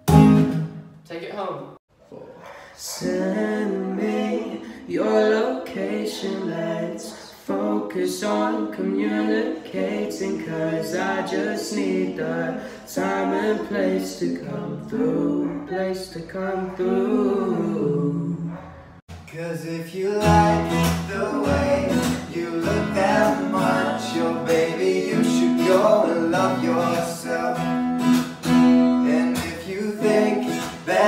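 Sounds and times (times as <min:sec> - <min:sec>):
breaths between phrases: 0:02.1 - 0:02.9, 0:12.6 - 0:12.9
male voices singing a cappella: 0:02.6 - 0:18.6, 0:19.3 - 0:27.8, 0:28.4 - 0:31.0.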